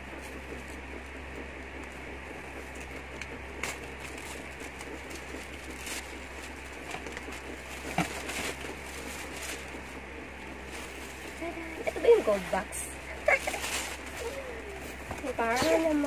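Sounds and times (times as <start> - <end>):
low room hum: 0.0 - 16.0
cardboard box rustling: 4.0 - 12.5, 13.1 - 16.0.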